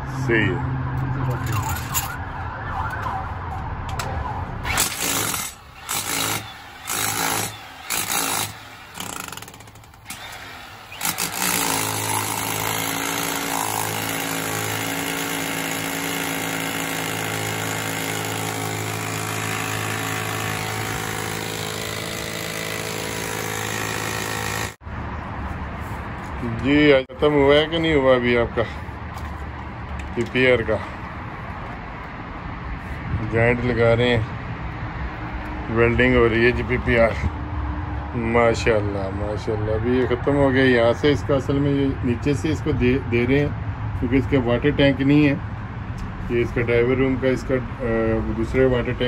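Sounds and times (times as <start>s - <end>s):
rotary hammer chiselling concrete: 4.7s - 24.8s.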